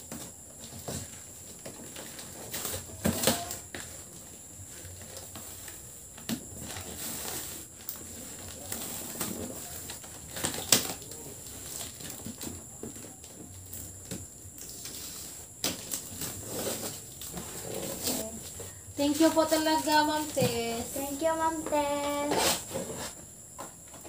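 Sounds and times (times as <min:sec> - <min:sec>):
cardboard and paper rustling: 0:00.0 - 0:24.0
packing tape tearing: 0:01.8 - 0:03.9, 0:06.6 - 0:12.5.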